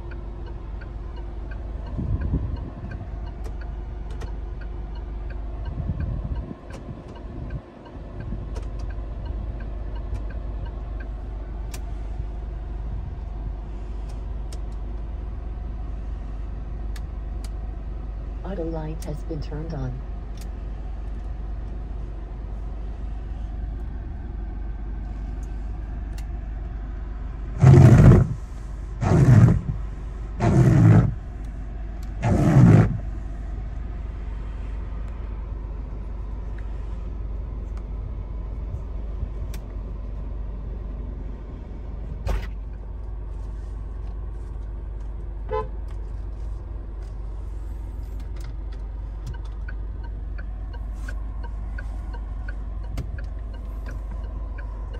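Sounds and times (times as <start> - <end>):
steady low hum: 0.0 - 54.9
car horn toots: 45.5 - 45.8.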